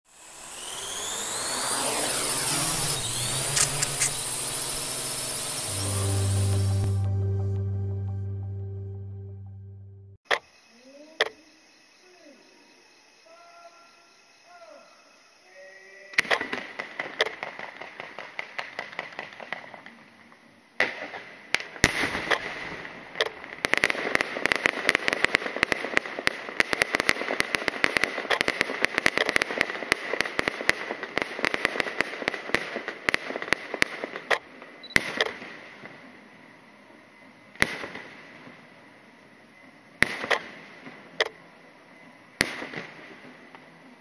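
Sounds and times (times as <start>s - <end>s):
firecrackers popping: 2.9s - 7.0s, 16.2s - 20.0s, 20.8s - 36.1s, 37.6s - 38.6s, 40.0s - 41.4s, 42.4s - 43.7s.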